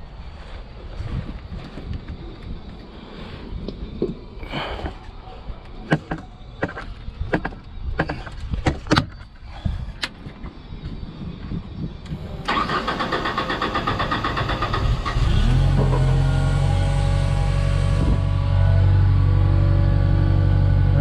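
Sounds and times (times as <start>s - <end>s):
engine cranking and running: 12.1s - 21.0s.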